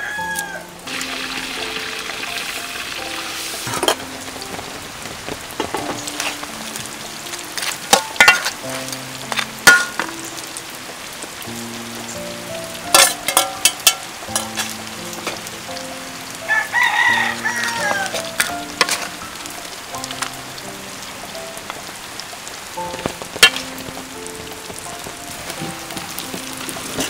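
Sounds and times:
rooster crowing: 0:00.0 - 0:00.8, 0:16.4 - 0:18.4
faint sizzle: 0:00.0 - 0:27.0
soft background music: 0:00.0 - 0:27.0
metal ladle scraping a wok: 0:13.0 - 0:14.8, 0:17.6 - 0:19.2.

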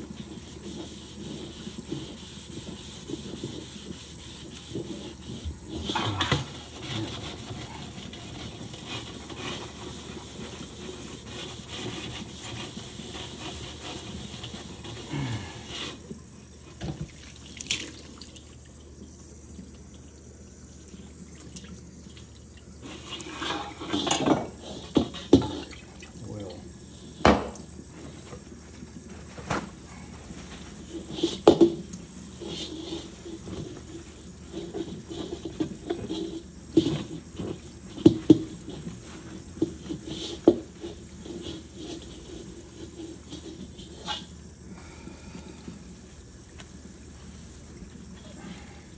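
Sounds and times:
scrub pad scrubbing wok: 0:00.0 - 0:16.2, 0:30.0 - 0:44.5.

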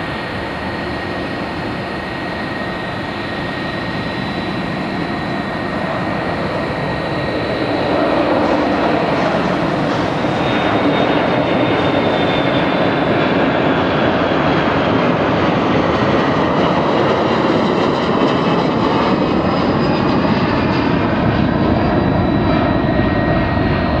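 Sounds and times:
high whining fan tones: 0:00.0 - 0:24.0
jet engines roaring overhead: 0:00.0 - 0:24.0.

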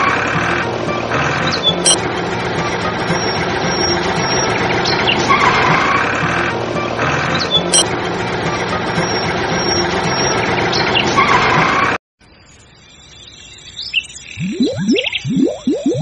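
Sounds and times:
engine-like running noise: 0:00.0 - 0:12.0
boing sound effects: 0:14.4 - 0:16.0.

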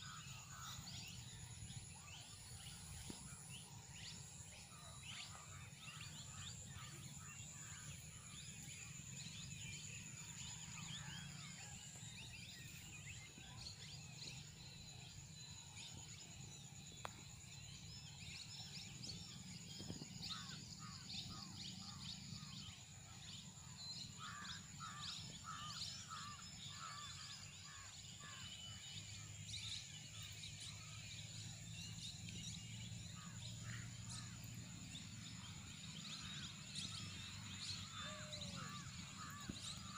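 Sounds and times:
birds chirping and calling: 0:35.1 - 0:39.9.

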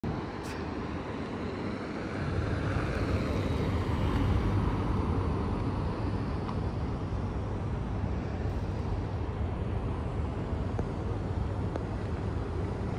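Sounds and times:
traffic rumble and tyre noise: 0:00.0 - 0:12.9
car passing: 0:00.8 - 0:06.8.

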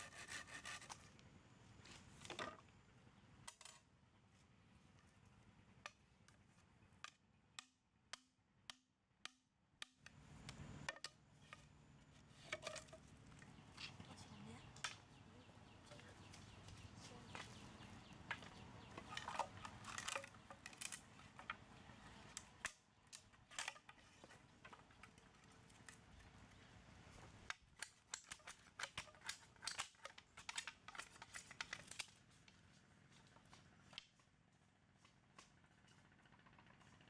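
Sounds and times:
knife cutting and scraping bamboo: 0:00.0 - 0:01.2, 0:05.8 - 0:14.0, 0:17.4 - 0:26.3, 0:27.1 - 0:34.2
bamboo strips knocking together: 0:10.8 - 0:11.7, 0:18.2 - 0:21.7, 0:22.3 - 0:26.2, 0:27.4 - 0:32.2.

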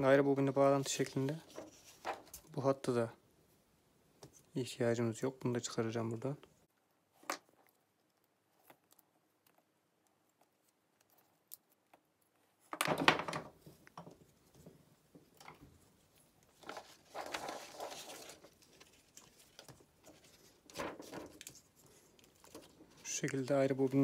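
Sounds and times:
paper rustling: 0:00.6 - 0:02.6, 0:16.4 - 0:24.0.

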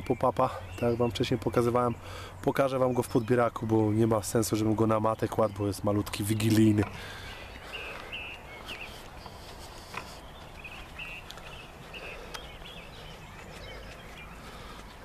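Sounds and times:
birds chirping: 0:00.0 - 0:15.0
faint clicks: 0:12.3 - 0:12.5.

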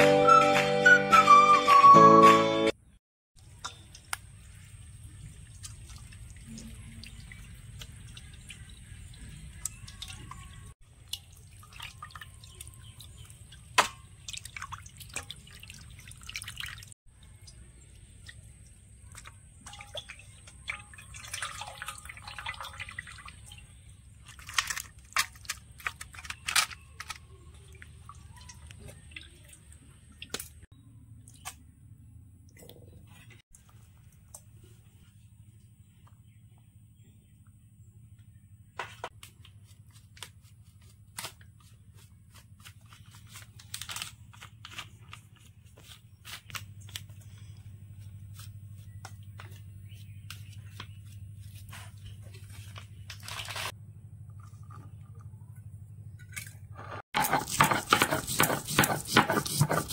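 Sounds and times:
water dripping and splashing: 0:03.4 - 0:25.9, 0:27.5 - 0:31.6.

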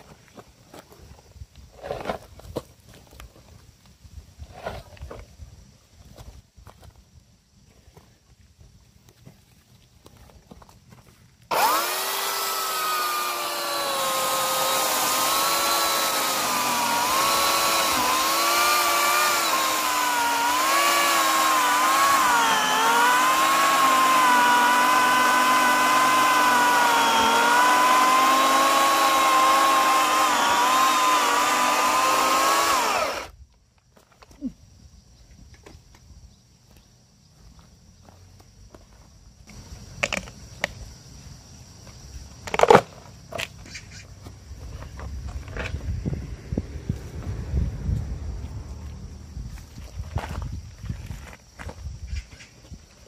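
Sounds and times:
electric chainsaw cutting log: 0:11.5 - 0:33.3.

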